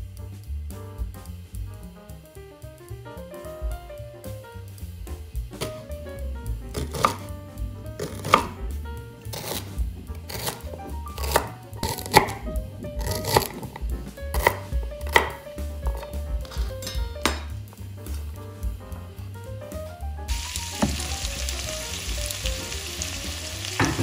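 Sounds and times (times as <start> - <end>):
background music: 0.7 - 24.0
knife chopping on wooden board: 6.7 - 7.2, 8.0 - 8.6, 9.3 - 9.7, 10.3 - 10.6, 11.2 - 12.4, 13.0 - 16.7.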